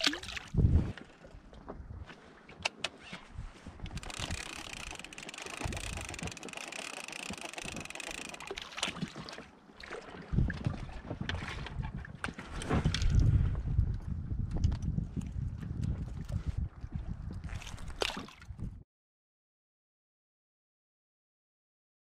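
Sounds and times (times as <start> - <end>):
water lapping against boat hull: 0.0 - 3.0, 3.7 - 13.6, 15.2 - 18.8
wind buffeting microphone: 0.2 - 1.0, 10.2 - 18.8.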